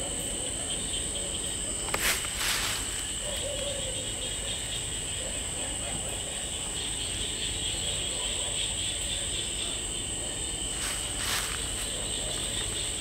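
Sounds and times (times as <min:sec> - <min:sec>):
crickets and insects shrilling: 0:00.0 - 0:13.0
brief rustles: 0:01.8 - 0:03.1.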